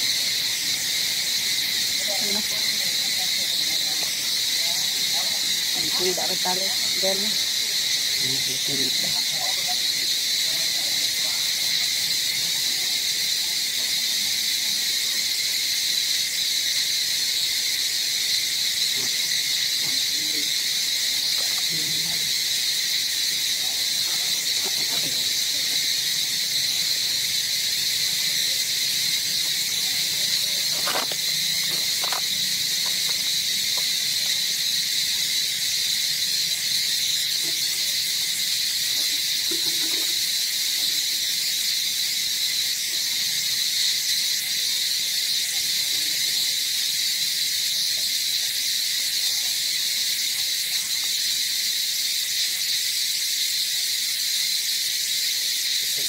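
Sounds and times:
insects droning: 0:00.0 - 0:56.0.

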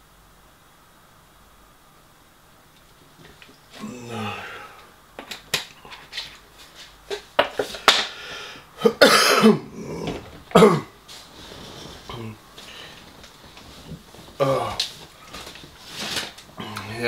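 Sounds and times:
low vocal sound: 0:03.8 - 0:05.0, 0:09.6 - 0:10.9, 0:14.4 - 0:14.9
man coughing: 0:08.8 - 0:11.0.

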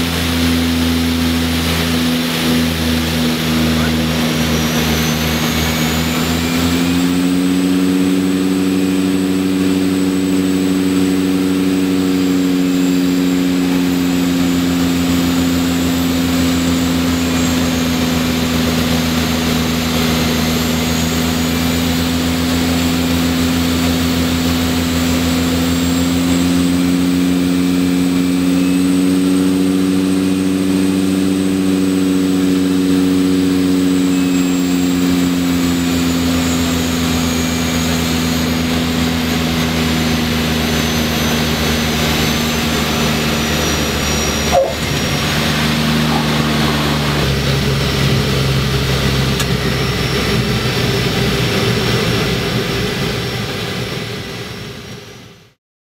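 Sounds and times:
faint high turbine whine: 0:00.0 - 0:55.5
turboprop engines droning: 0:00.0 - 0:55.6.

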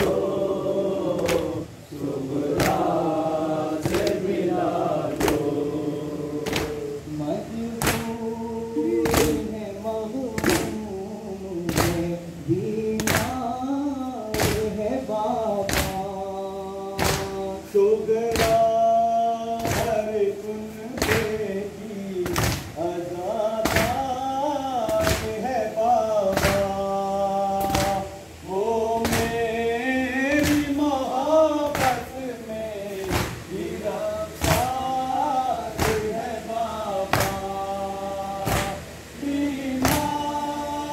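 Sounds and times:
men chanting in unison: 0:00.0 - 0:40.9
men singing a lament together: 0:00.0 - 0:40.9
collective chest-beating slaps: 0:01.1 - 0:01.6, 0:02.4 - 0:03.2, 0:03.8 - 0:04.4, 0:05.0 - 0:05.6, 0:06.4 - 0:06.9, 0:07.8 - 0:08.3, 0:09.0 - 0:09.5, 0:10.4 - 0:10.8, 0:11.6 - 0:12.2, 0:13.0 - 0:13.4, 0:14.3 - 0:14.8, 0:15.6 - 0:16.1, 0:17.0 - 0:17.4, 0:18.3 - 0:18.8, 0:19.6 - 0:20.1, 0:20.9 - 0:21.5, 0:22.2 - 0:22.8, 0:23.6 - 0:24.1, 0:24.8 - 0:25.4, 0:26.2 - 0:26.8, 0:27.6 - 0:28.1, 0:29.0 - 0:29.5, 0:30.3 - 0:30.8, 0:31.6 - 0:32.1, 0:33.0 - 0:33.7, 0:34.3 - 0:35.0, 0:35.7 - 0:36.5, 0:37.1 - 0:37.5, 0:38.4 - 0:38.9, 0:39.8 - 0:40.2.

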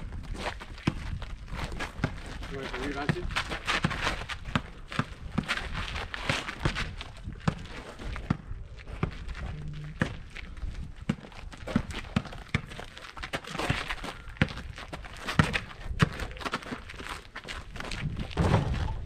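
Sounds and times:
shoes running on gravel: 0:00.0 - 0:18.4
basketball bouncing: 0:03.0 - 0:05.6, 0:06.6 - 0:09.2, 0:11.0 - 0:12.9, 0:13.5 - 0:16.4.

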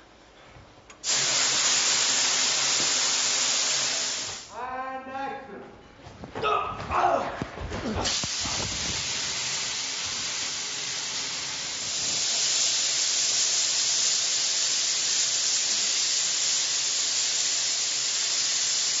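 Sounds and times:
high-pitched hissing rush: 0:01.0 - 0:04.6, 0:08.0 - 0:19.0.

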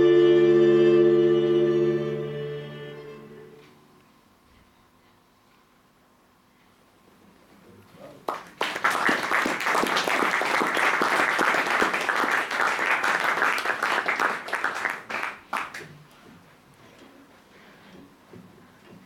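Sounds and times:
audience applauding: 0:08.3 - 0:15.9.

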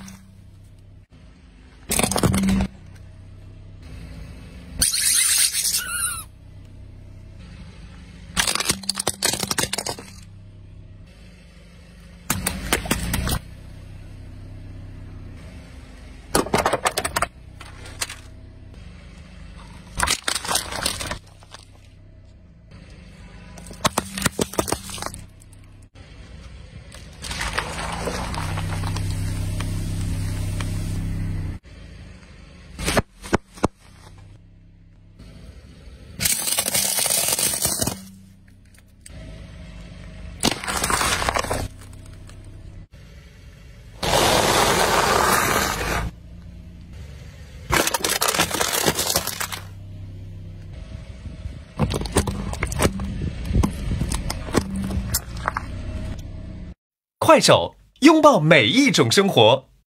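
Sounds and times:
tyre crushing plastic: 0:08.4 - 0:10.2, 0:19.9 - 0:21.7, 0:23.6 - 0:25.4, 0:27.0 - 0:29.6, 0:36.2 - 0:38.1, 0:40.4 - 0:42.4, 0:47.7 - 0:49.7.

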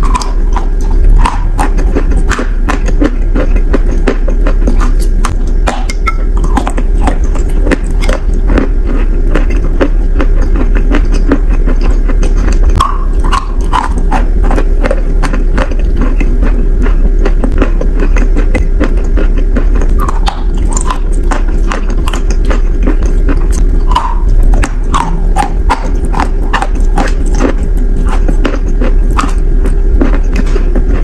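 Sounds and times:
crisp chewing crunches: 0:00.0 - 0:31.0
wet mouth noise: 0:00.0 - 0:31.0.

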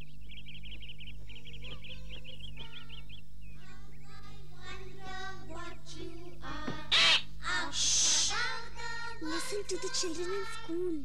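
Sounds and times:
cartoon parrot squawking: 0:06.9 - 0:08.4.

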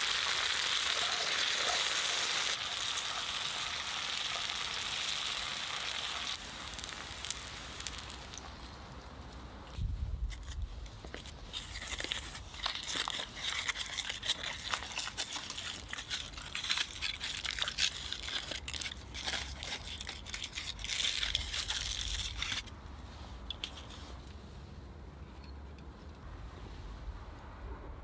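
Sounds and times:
aluminium foil crinkling: 0:00.0 - 0:08.7, 0:10.2 - 0:22.7.

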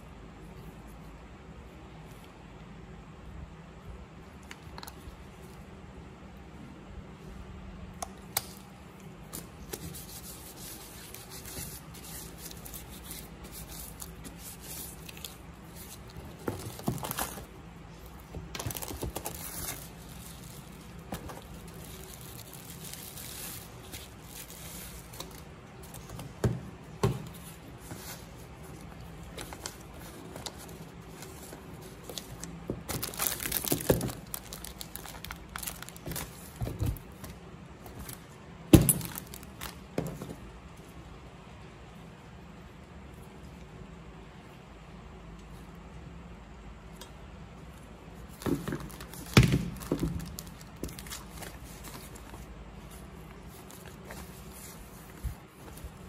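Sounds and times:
scraping and crinkling: 0:08.4 - 0:40.5, 0:47.7 - 0:56.0.

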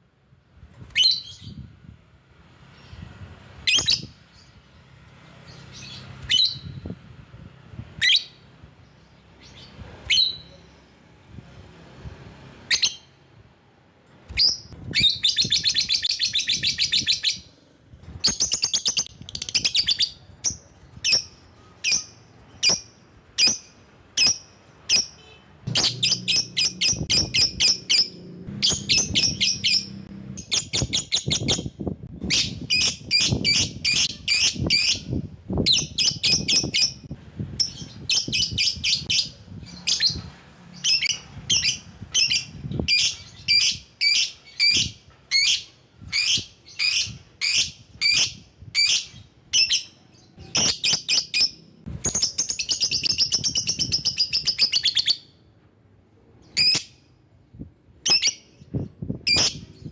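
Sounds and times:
lovebird chattering: 0:23.5 - 0:31.4.

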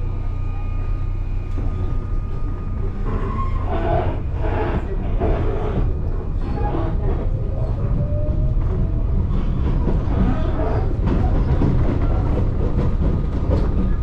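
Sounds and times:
train motor whine: 0:00.0 - 0:07.2
train rumbling over track: 0:00.0 - 0:14.0.

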